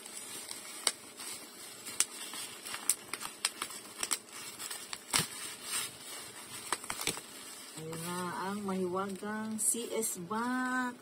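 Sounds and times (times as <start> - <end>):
bubble wrap crinkling and snapping: 0.0 - 10.9.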